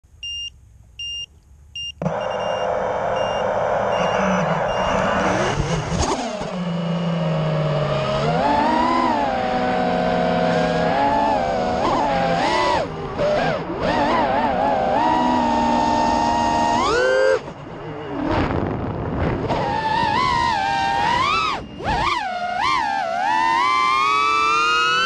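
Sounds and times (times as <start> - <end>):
short electronic beeps: 0.2 - 5.8
quadcopter motors whining: 2.0 - 25.0.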